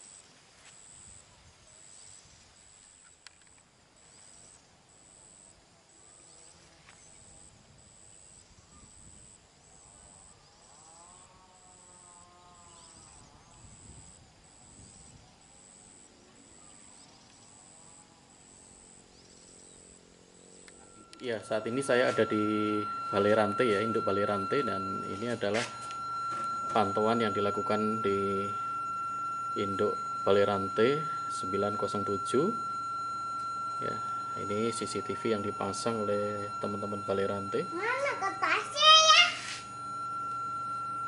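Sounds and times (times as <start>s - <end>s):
high-pitched insect chirp: 0.0s - 41.0s
drawn-out distant call: 16.4s - 41.0s.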